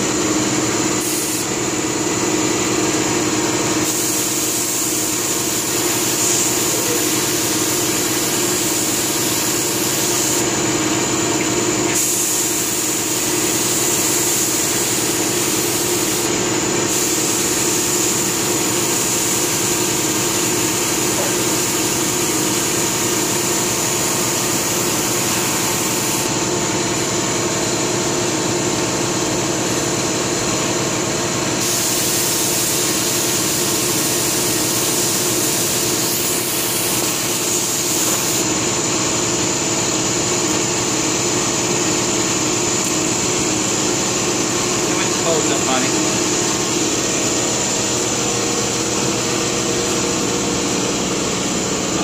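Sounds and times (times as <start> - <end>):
air compressor hum: 0.0 - 52.0
paint spray gun hissing: 1.0 - 1.6, 3.8 - 10.6, 11.3 - 26.4, 31.6 - 38.8.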